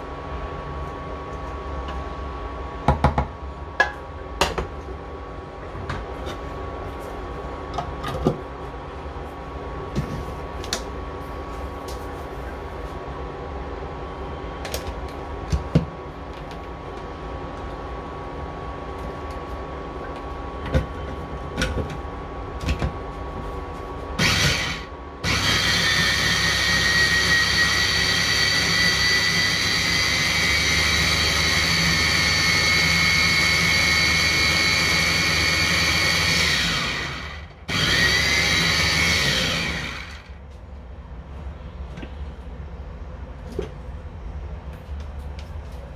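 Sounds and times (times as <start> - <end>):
food chopper grinding with whine: 24.2 - 40.4.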